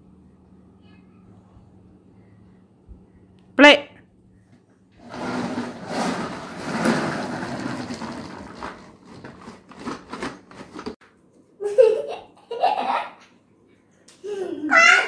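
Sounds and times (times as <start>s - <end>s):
plastic wheels rumbling on wood: 5.0s - 11.0s
child's voice: 14.2s - 15.0s.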